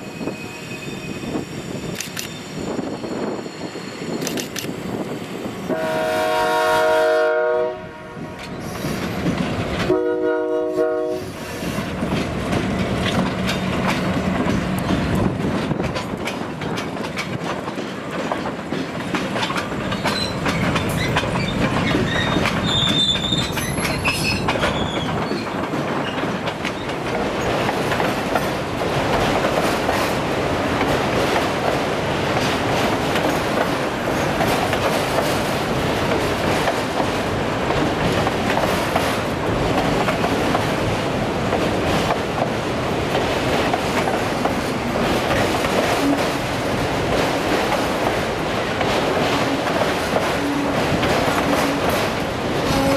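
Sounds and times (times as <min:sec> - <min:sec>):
high wheel squeal: 0:00.0 - 0:04.3, 0:20.0 - 0:25.5
freight train wheels clacking: 0:08.3 - 0:52.9.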